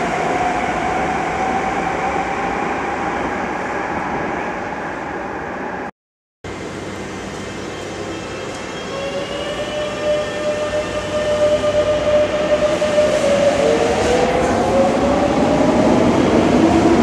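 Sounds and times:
rumble of train wheels: 6.5s - 17.0s
train motor whine rising: 8.0s - 14.9s.

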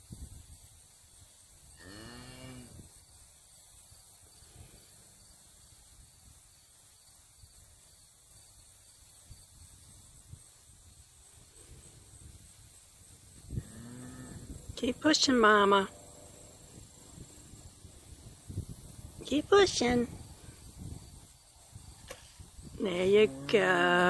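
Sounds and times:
wind rumble on microphone: 0.0s - 1.9s, 2.5s - 3.2s, 9.2s - 24.0s.

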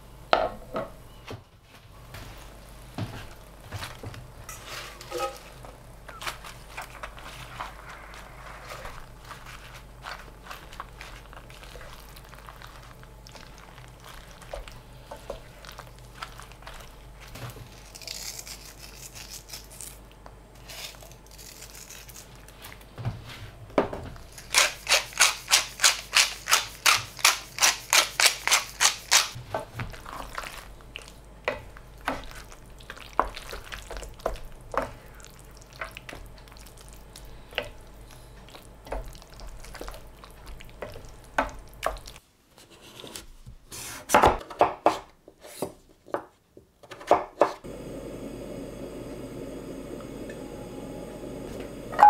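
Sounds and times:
risotto cooking in pan: 2.1s - 17.4s, 27.2s - 42.2s
wooden spoon stirring risotto: 2.1s - 17.8s, 27.8s - 42.2s
mill grinding seasoning: 47.7s - 51.9s.

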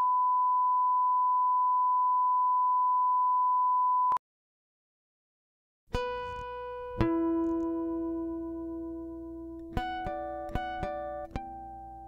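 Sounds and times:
steady test tone beep: 0.0s - 4.2s.

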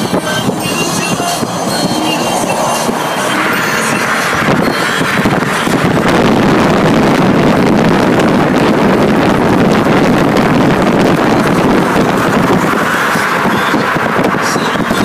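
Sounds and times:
car road noise: 0.0s - 15.0s
wind buffeting microphone: 0.0s - 15.0s.

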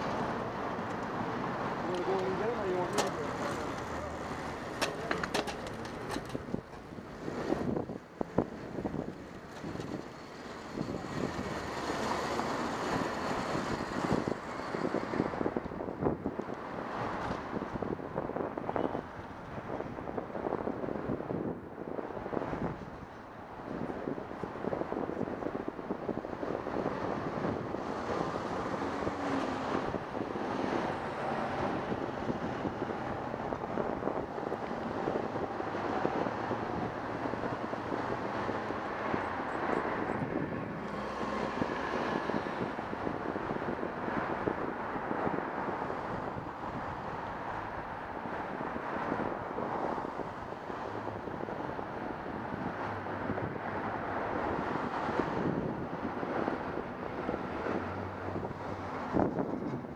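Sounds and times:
vehicle engine hum: 0.0s - 19.6s
passing cars: 0.0s - 59.9s
road noise: 0.0s - 59.9s
wind buffeting microphone: 0.0s - 59.9s.

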